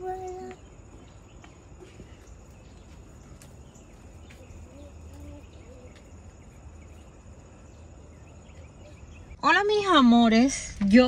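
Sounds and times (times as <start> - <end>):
insects trilling: 0.0 - 9.4.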